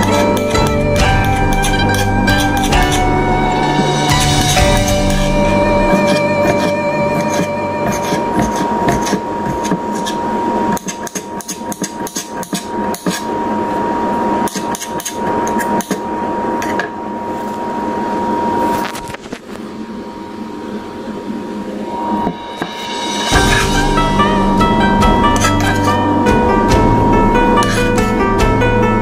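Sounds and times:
knife chopping on cutting board: 0:05.9 - 0:13.2.

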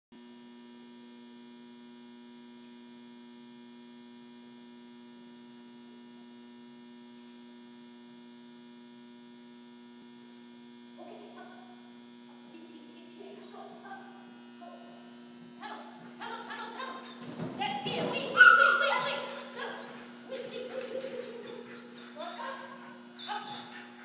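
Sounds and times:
electrical mains hum: 0:00.2 - 0:24.0
dog squeaking and whining: 0:16.8 - 0:24.0.

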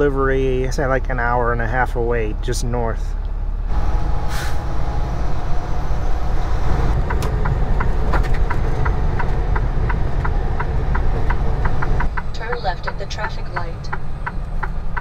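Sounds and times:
truck engine and road rumble: 0:00.0 - 0:15.0
light regular ticking: 0:07.0 - 0:15.0.

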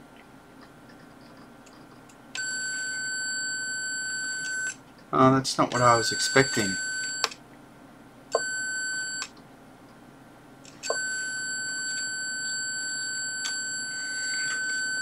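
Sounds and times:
electronic buzzer high tone: 0:05.8 - 0:07.3, 0:10.9 - 0:15.0.

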